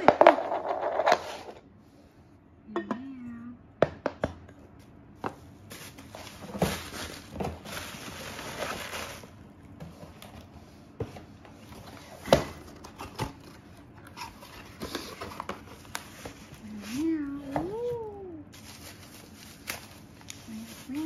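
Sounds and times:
packaging rustling: 5.7 - 9.4, 17.7 - 21.0.

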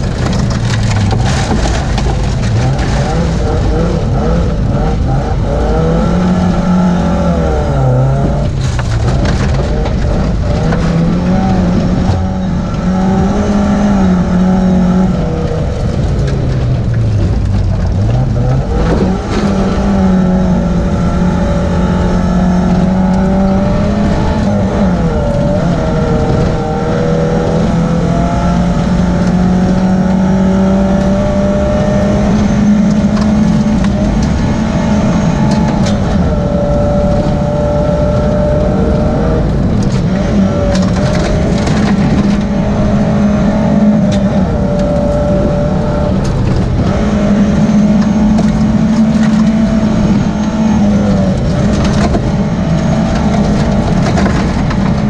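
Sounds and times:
stones clicking against car: 0.0 - 4.4
tyres on gravel: 0.0 - 5.9, 7.6 - 14.3
rally car engine revving: 0.0 - 55.0.

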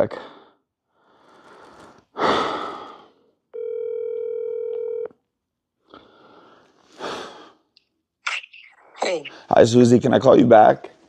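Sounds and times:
telephone ringback tone: 3.6 - 5.1.

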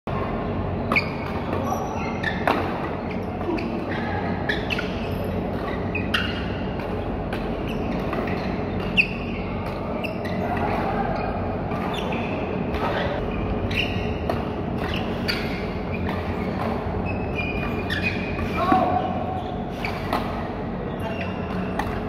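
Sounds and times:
low hum of indoor hall: 0.1 - 22.0
shoes squeaking on court: 0.8 - 22.0
rackets hitting shuttlecock: 4.8 - 11.0, 14.1 - 17.0, 19.9 - 20.6, 21.2 - 22.0.

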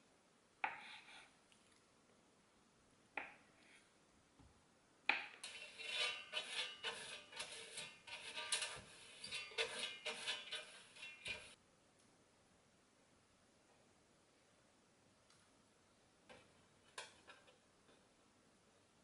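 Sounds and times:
brush scraping metal basket: 5.4 - 11.6.

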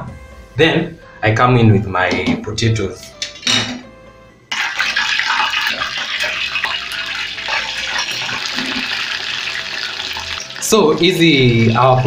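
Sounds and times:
potatoes sizzling in hot oil: 4.5 - 12.0.

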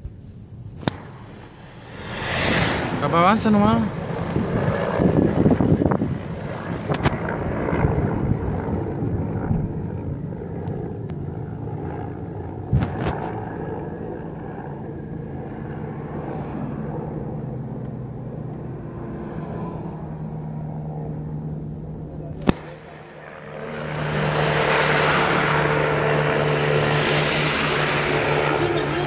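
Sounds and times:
steady low hum: 0.0 - 29.0
car driving past: 1.2 - 3.5.

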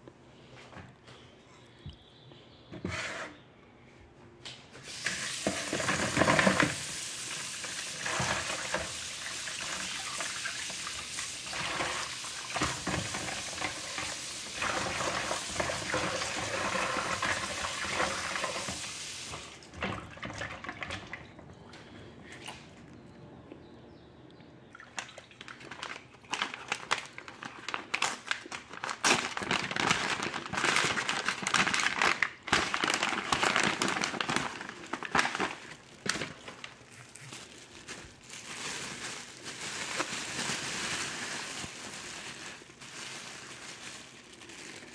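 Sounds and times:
wrapping crinkling: 25.4 - 44.9.

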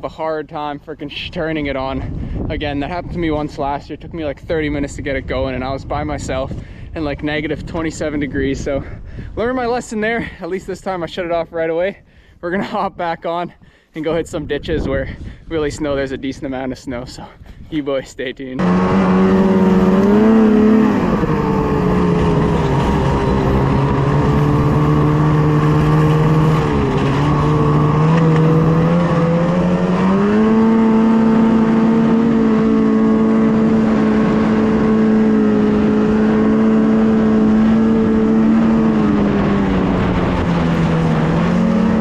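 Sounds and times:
snowmobile engine revving: 18.6 - 42.0.

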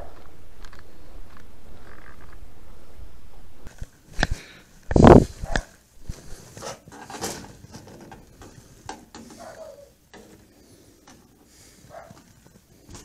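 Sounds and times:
footsteps: 3.6 - 13.0
soft rustling: 3.7 - 13.0.

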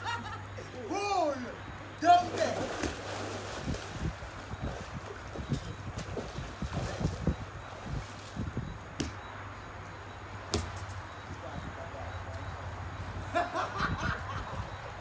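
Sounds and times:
voices: 0.0 - 3.0, 11.1 - 15.0
football being kicked: 9.0 - 9.2.

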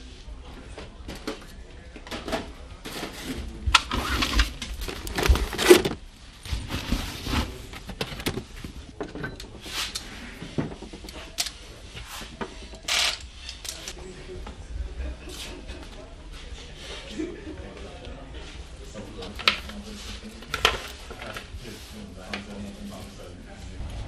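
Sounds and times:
tools rummaged in plastic bins: 2.1 - 11.6.

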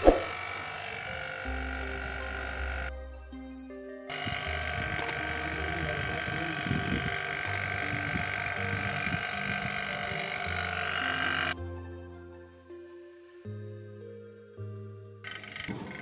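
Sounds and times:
vacuum pump running: 0.0 - 2.9, 4.1 - 11.6.

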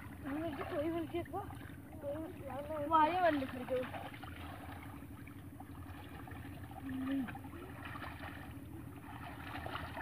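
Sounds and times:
hands sloshing in muddy water: 0.0 - 10.0
low background rumble: 0.0 - 10.0.

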